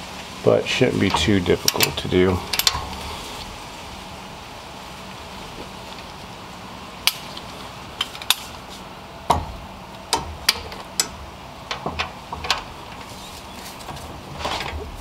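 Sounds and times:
metallic clicks and knocks: 1.0 - 3.1, 9.3 - 13.1
dull thuds: 9.3 - 10.8.

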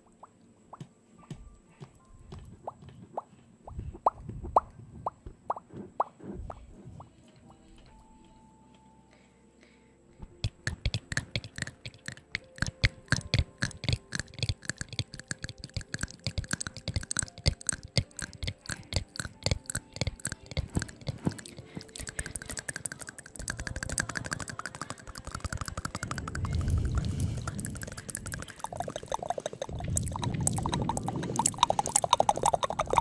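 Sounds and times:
rapid mouth clicks and pops: 10.4 - 33.0.

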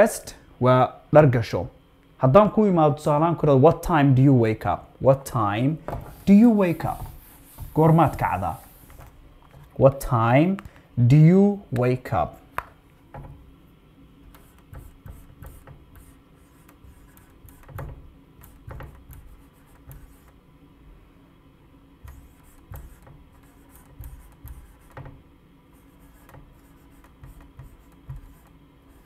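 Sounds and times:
low steady hum: 0.0 - 29.0
rubbing sounds: 5.9 - 9.7, 14.3 - 20.4, 22.0 - 29.0.

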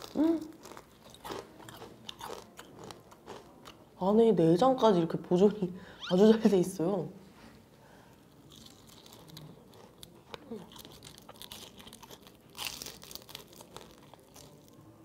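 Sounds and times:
fried shrimp crunching: 0.0 - 3.8, 8.3 - 14.9.

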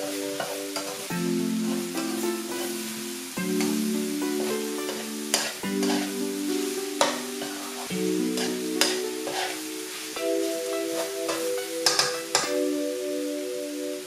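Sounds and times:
background music: 0.0 - 14.0
food sizzling in a pot: 0.0 - 14.0
utensil scraping a pot: 4.4 - 6.2, 8.4 - 9.6.

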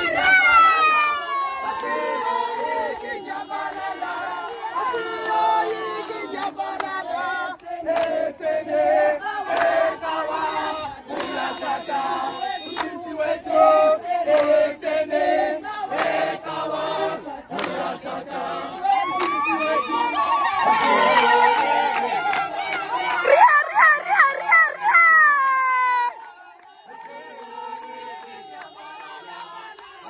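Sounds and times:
people shouting: 0.0 - 6.6, 18.6 - 30.0
crowd singing together: 0.0 - 24.6, 26.1 - 30.0
hand clapping: 6.3 - 8.2, 9.5 - 9.8, 11.1 - 11.7, 12.7 - 13.6, 14.3 - 14.6, 17.5 - 17.9, 19.1 - 19.6.

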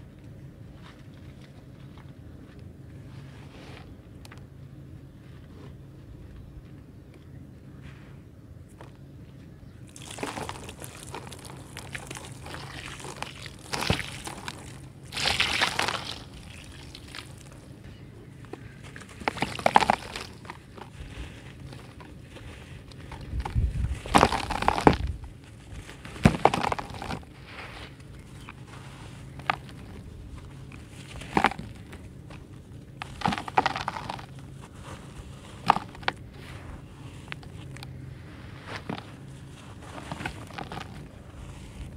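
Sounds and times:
dirt clumps crunching and crumbling: 8.7 - 41.9
water pouring onto dry dirt: 9.9 - 17.6
grit spilling onto dirt: 9.9 - 17.7, 18.8 - 28.0.

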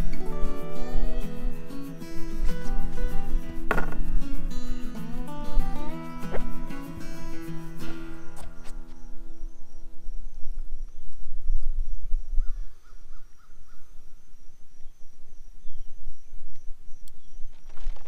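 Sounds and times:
pulsing high chirp: 0.0 - 10.8.

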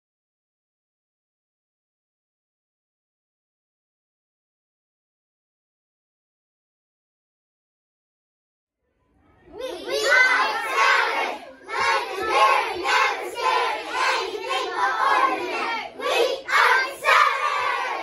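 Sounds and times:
young children cheering and shouting: 9.5 - 18.0.

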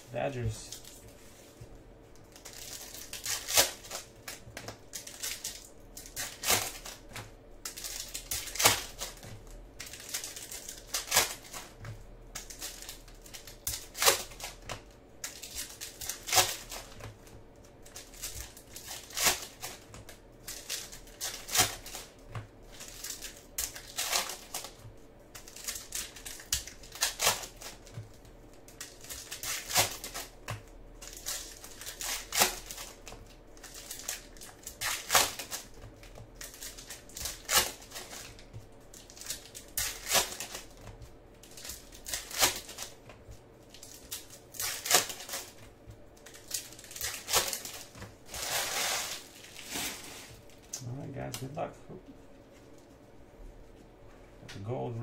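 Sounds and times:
foil wrappers crinkling and tearing: 0.3 - 51.6.

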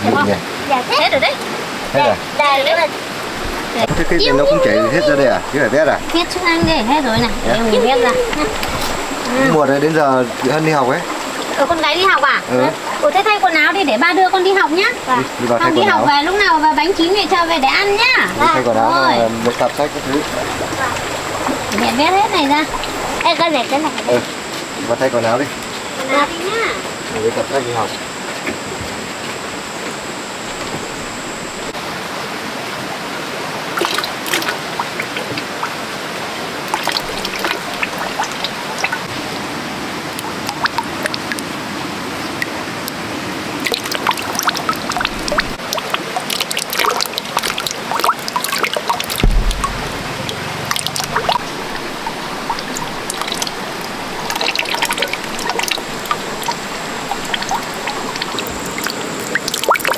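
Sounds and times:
water trickling and pouring: 0.0 - 28.0, 33.6 - 59.9
low thump: 3.9 - 8.0, 49.2 - 54.4.

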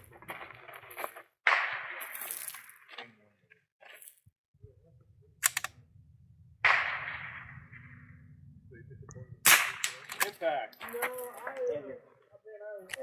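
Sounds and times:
rifle shot: 1.5 - 2.8, 6.6 - 8.3, 9.4 - 10.4.

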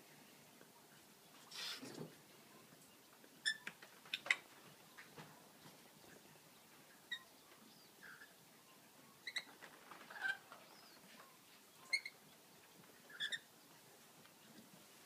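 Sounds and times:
lorikeets chirping: 9.2 - 9.5, 11.8 - 12.2, 13.1 - 13.5.

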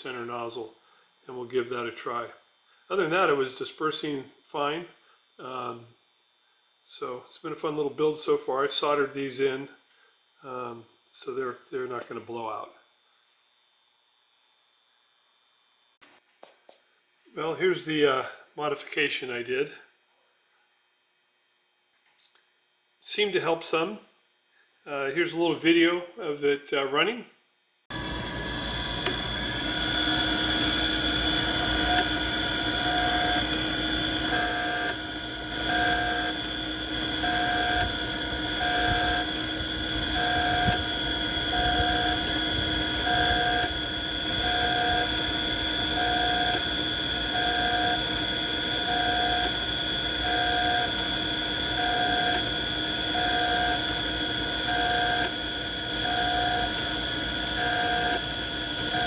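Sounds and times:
grinder motor hum and whine: 27.9 - 59.0
grinding wheel surges: 27.9 - 59.0.

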